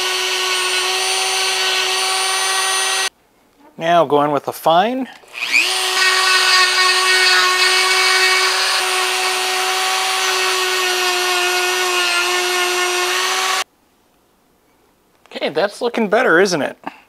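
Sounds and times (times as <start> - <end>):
rotary tool high-pitched whine: 0.0 - 3.1, 5.3 - 13.6.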